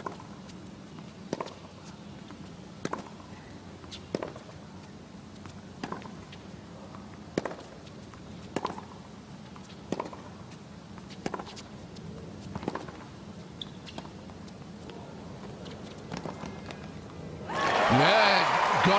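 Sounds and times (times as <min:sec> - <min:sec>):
low steady background hum: 0:00.0 - 0:18.9
tennis ball struck by rackets: 0:01.3 - 0:01.6, 0:02.8 - 0:03.1, 0:07.3 - 0:07.7, 0:08.5 - 0:09.0, 0:09.9 - 0:10.3, 0:11.2 - 0:11.6.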